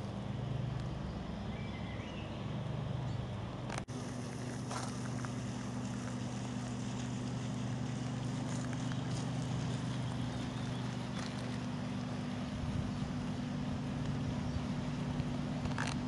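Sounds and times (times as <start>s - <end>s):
low mechanical drone: 0.0s - 16.0s.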